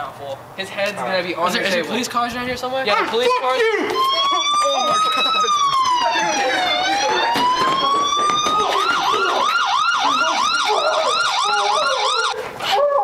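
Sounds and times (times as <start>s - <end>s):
siren wailing and yelping: 3.8s - 13.0s.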